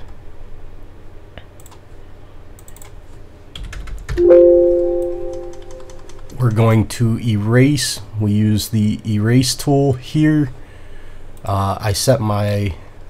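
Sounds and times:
keyboard and mouse clicks: 2.6s - 3.0s, 5.0s - 6.5s
loud ringing tone: 4.2s - 6.4s.

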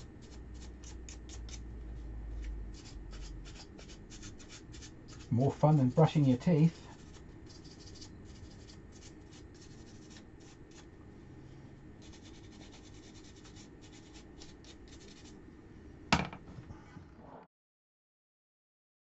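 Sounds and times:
pen tip scratching wood: 0.2s - 1.6s, 2.8s - 5.3s, 7.0s - 10.8s, 12.0s - 15.3s.

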